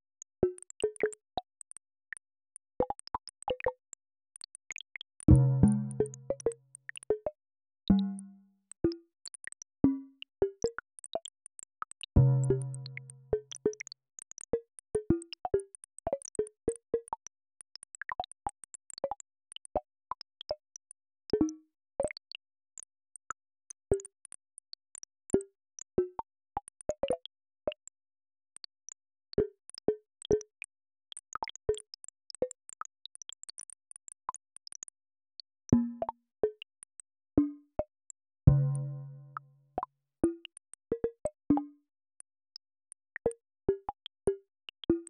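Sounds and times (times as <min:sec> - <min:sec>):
synthetic plinks and plops: 0:05.3 - 0:09.0, 0:12.2 - 0:13.8, 0:35.7 - 0:36.6, 0:38.5 - 0:41.8.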